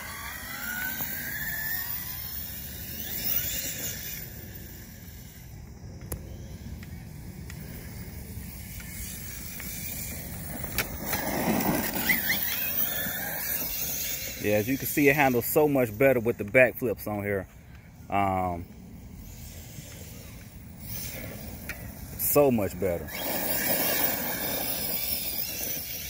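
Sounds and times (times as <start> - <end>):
electric motor whining: 7.6 - 15.1, 19.2 - 26.0.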